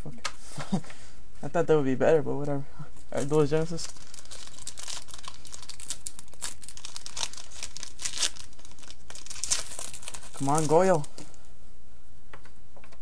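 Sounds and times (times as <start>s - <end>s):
foil wrapper crinkling and tearing: 3.2s - 11.3s.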